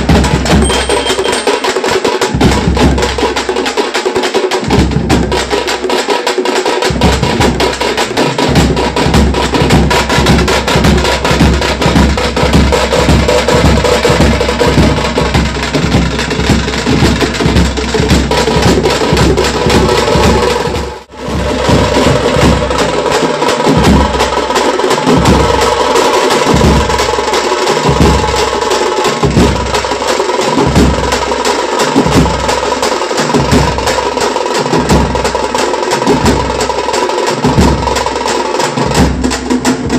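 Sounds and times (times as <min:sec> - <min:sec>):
deep drum beats: 0:00.0 - 0:39.9
sharp drum stick strokes: 0:00.6 - 0:02.4.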